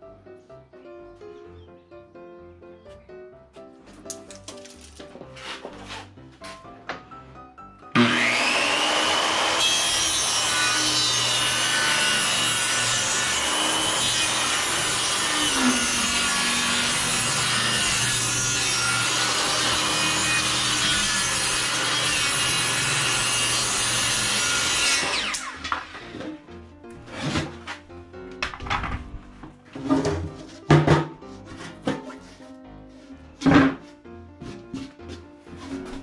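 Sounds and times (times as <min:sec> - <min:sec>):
power tool cutting wood: 0:08.0 - 0:26.4.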